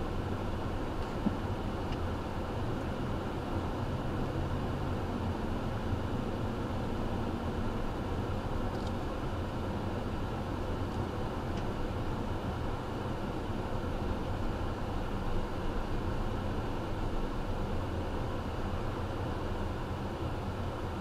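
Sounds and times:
car engine rumble: 0.0 - 21.0.

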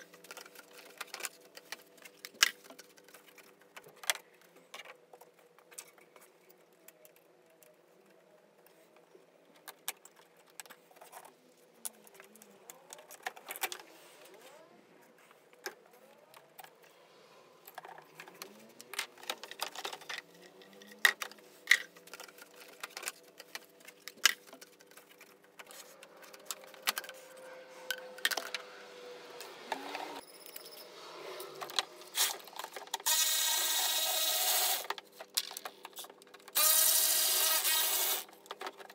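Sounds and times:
clicks and rattles of car parts: 9.5 - 13.9, 17.6 - 27.2, 27.9 - 28.6, 34.8 - 36.6, 38.2 - 38.9
power tool running: 33.0 - 34.9, 36.6 - 38.3.

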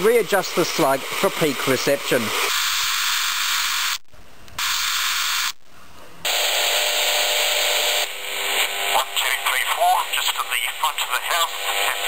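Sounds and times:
radio static hiss: 6.3 - 12.0.

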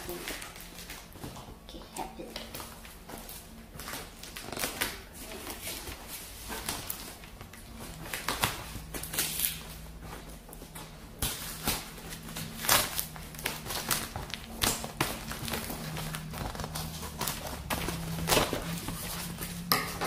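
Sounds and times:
tape and cardboard tearing: 4.2 - 5.6, 8.0 - 9.8, 11.2 - 20.0
scissors cutting packing tape: 8.0 - 9.7, 11.2 - 19.4.

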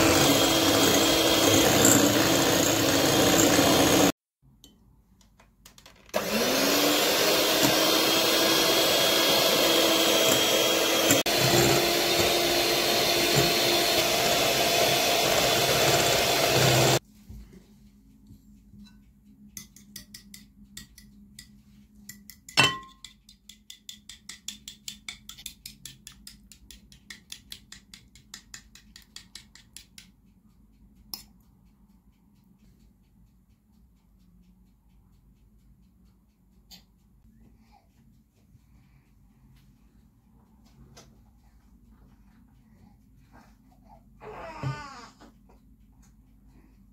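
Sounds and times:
electric hand mixer whipping: 0.0 - 4.2, 6.2 - 17.0
fork clinking against china bowl: 22.1 - 24.1.

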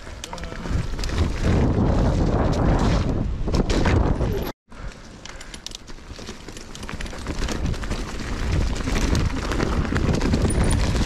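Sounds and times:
bike tyres crackling through leaves: 0.0 - 4.0, 4.8 - 11.0
wind rumble on microphone: 0.0 - 4.5, 7.3 - 11.0.

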